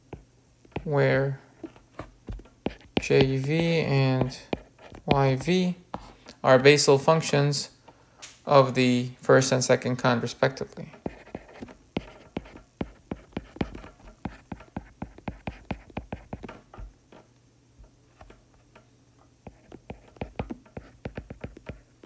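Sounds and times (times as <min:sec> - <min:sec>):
stylus tapping on tablet screen: 0:02.2 - 0:05.6, 0:11.1 - 0:16.9, 0:19.5 - 0:21.8.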